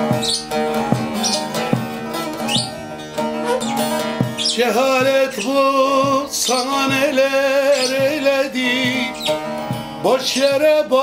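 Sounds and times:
plucked lute: 0.0 - 11.0
man singing wordless held notes: 4.2 - 11.0.

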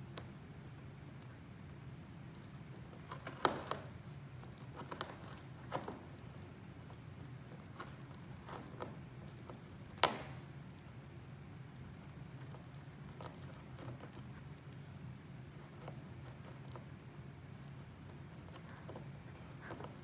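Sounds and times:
cat tearing cardboard: 2.8 - 6.4
cardboard snapping: 3.0 - 3.9, 9.8 - 10.4.

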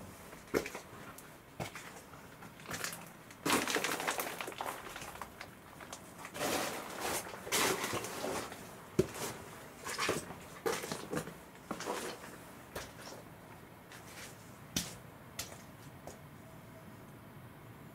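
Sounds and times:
footsteps crunching on gritty floor: 2.7 - 13.2, 13.9 - 15.9.

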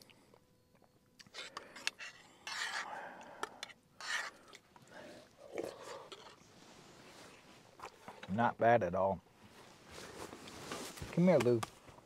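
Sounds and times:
breathy slurps: 4.2 - 6.4.

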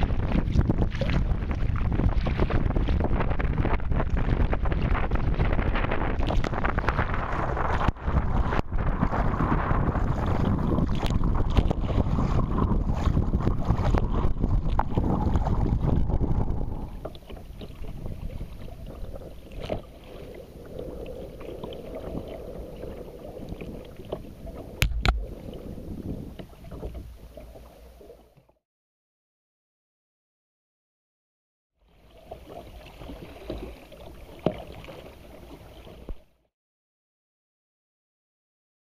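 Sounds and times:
wind buffeting microphone: 0.0 - 27.1
kayak paddle splashing: 0.0 - 28.6, 31.9 - 36.4
water lapping: 0.0 - 28.6, 31.8 - 36.4.

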